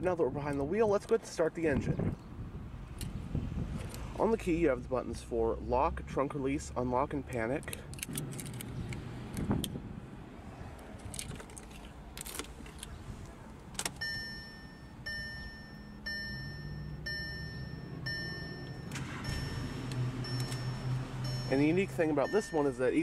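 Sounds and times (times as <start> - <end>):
car keys jangling: 7.4 - 8.7, 11.0 - 13.0, 13.7 - 22.8
dashboard warning chime beeping: 14.0 - 23.0.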